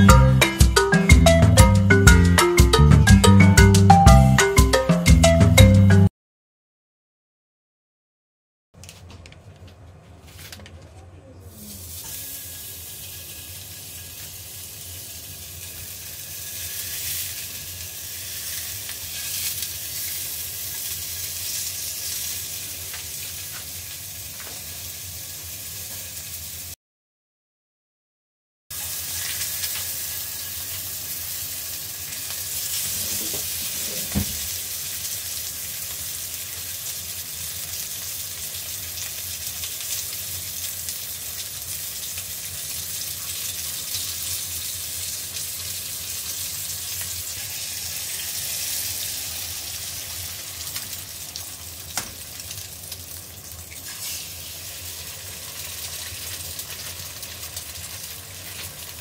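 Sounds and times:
meat sizzling in hot oil: 11.6s - 26.8s, 28.7s - 59.0s.

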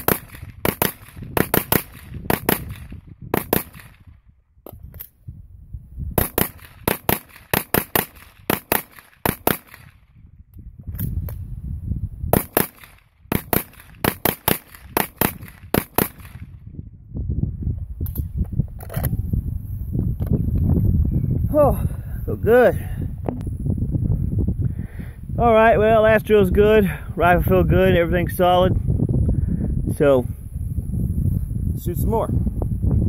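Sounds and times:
rifle firing rapid shots: 0.0s - 4.0s, 6.2s - 9.9s, 12.4s - 16.4s.

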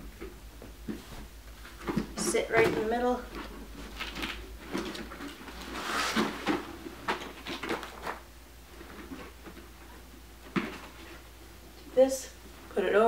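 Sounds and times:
plastic panels knocking and rustling: 0.0s - 8.2s, 8.8s - 11.2s.

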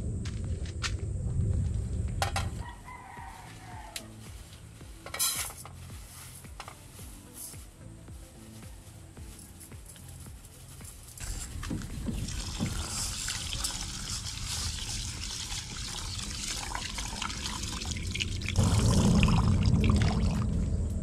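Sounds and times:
water pouring into metal pot: 12.2s - 20.7s.

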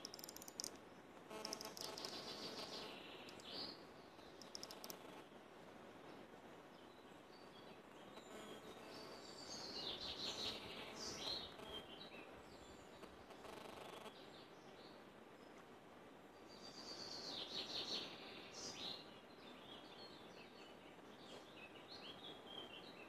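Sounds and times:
low steady hiss: 0.0s - 23.0s
faint bird chirps: 1.3s - 5.2s.

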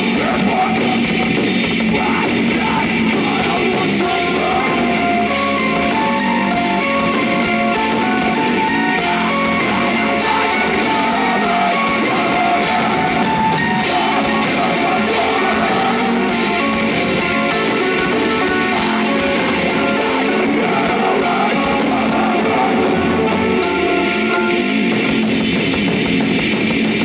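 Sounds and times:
distorted electric guitars: 0.0s - 27.0s
drum kit with cymbals: 0.0s - 27.0s
held high melodic notes: 4.0s - 24.9s.

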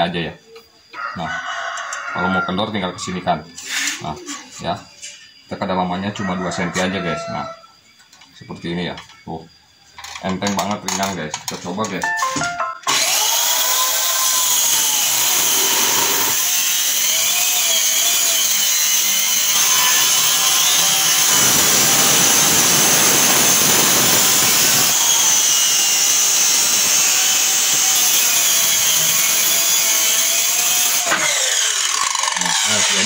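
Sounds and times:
circular saw cutting wood: 12.8s - 33.0s.

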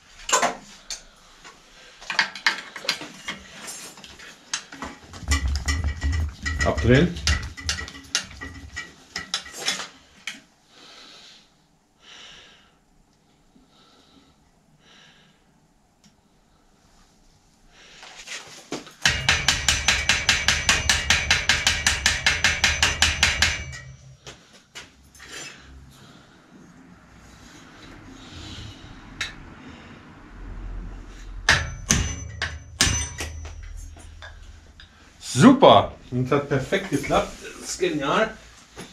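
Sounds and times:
heavy breaths: 9.9s - 15.6s, 24.2s - 31.4s
hammer striking metal pin: 19.0s - 24.3s, 31.5s - 34.5s.

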